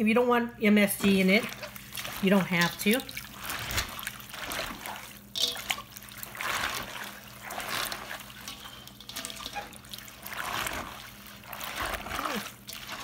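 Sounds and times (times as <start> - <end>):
wet squelching and sloshing: 0.9 - 13.0.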